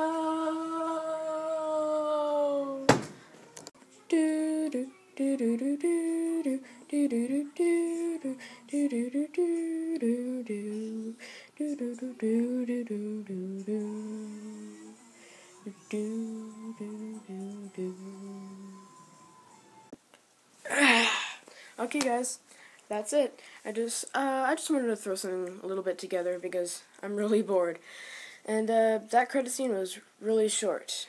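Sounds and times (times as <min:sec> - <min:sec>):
boy crying nooo: 0:00.0 - 0:02.9
person humming a tune: 0:00.0 - 0:02.9, 0:04.1 - 0:19.3.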